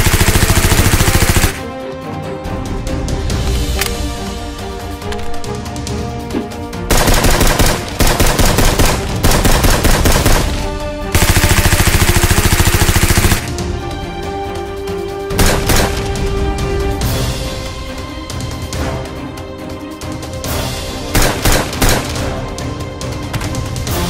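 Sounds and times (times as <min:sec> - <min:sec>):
toy blaster rapid-fire bursts: 0:00.0 - 0:01.6, 0:06.9 - 0:10.6, 0:11.2 - 0:13.5
background music: 0:00.0 - 0:24.0.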